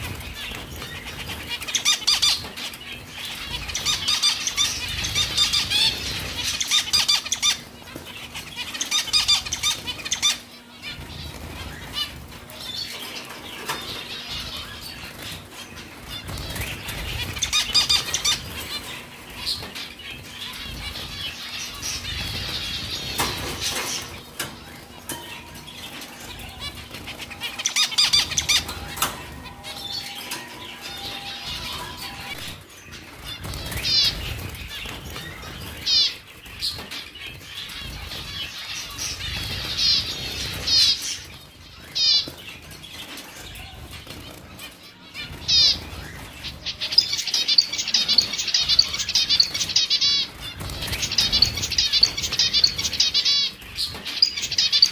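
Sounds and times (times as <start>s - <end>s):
high chirping calls: 0.0s - 54.9s
finch wings flapping: 33.0s - 41.4s, 43.8s - 54.9s.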